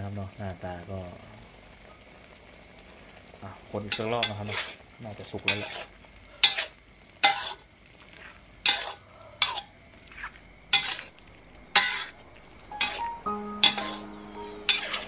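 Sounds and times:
meat frying: 0.0s - 15.0s
metal spatula scraping a wok: 3.9s - 4.8s, 5.4s - 15.0s.

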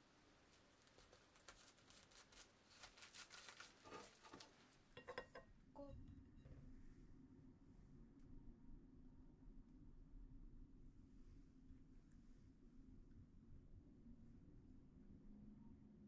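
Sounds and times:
plastic cling film crinkling: 0.5s - 4.6s.

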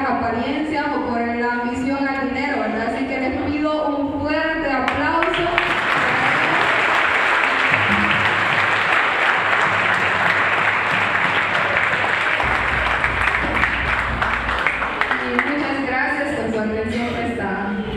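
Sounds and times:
audience applauding: 5.2s - 15.9s
low hum: 7.8s - 8.7s.

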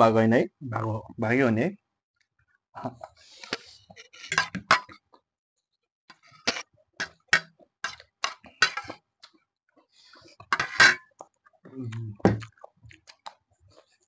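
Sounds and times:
cutlery clinking against a plate: 4.3s - 5.0s, 10.5s - 11.1s.

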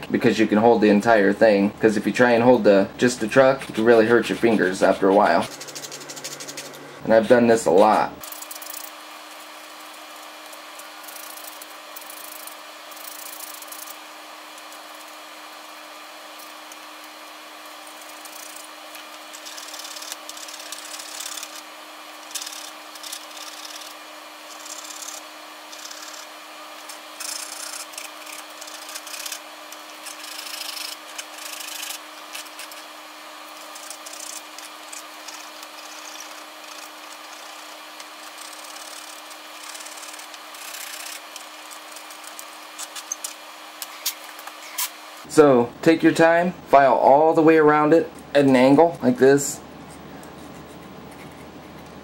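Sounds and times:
steady low hum: 0.0s - 52.0s
metal file scraping metal: 2.4s - 7.0s, 16.3s - 44.9s.

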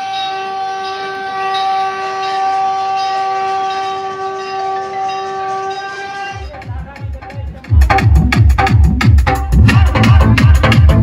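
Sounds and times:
steady horn-like tone: 0.0s - 6.6s.

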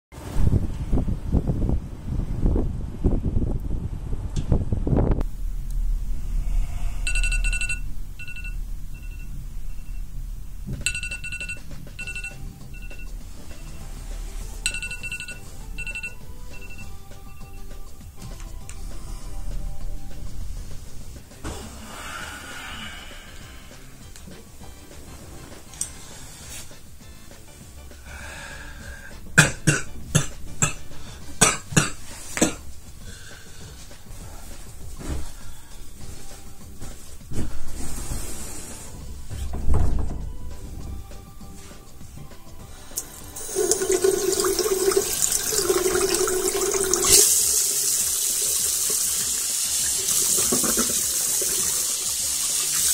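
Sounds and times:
electronic alarm trilling and beeping: 7.0s - 17.7s.

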